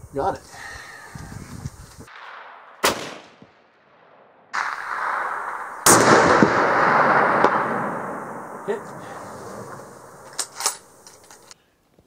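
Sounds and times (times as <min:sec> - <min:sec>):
rifle shot: 0:02.1 - 0:11.0.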